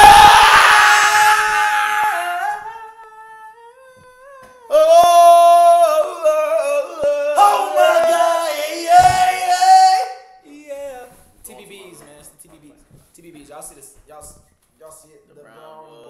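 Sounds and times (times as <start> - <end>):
men singing held notes: 5.8 - 9.6.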